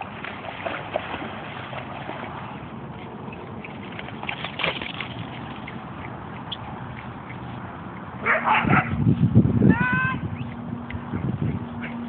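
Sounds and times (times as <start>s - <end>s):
dog splashing through water: 0.0s - 8.4s.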